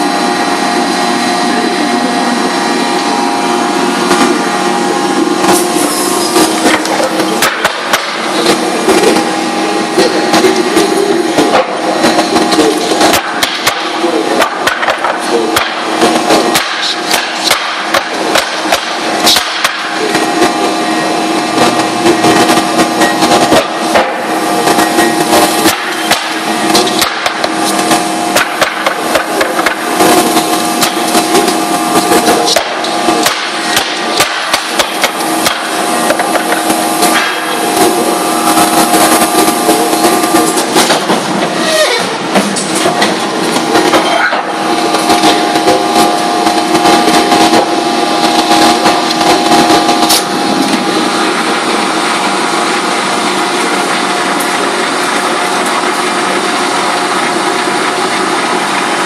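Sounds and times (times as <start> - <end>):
paper cutter machine hum: 0.0 - 59.0
paper stacks knocking and slapping: 13.0 - 19.9, 25.6 - 29.8, 30.8 - 37.5.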